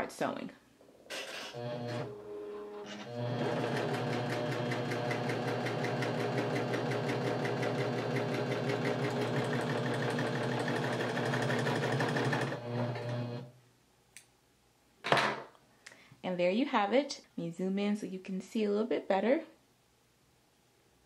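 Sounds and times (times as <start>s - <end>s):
serger sewing machine stitching: 1.1s - 13.5s.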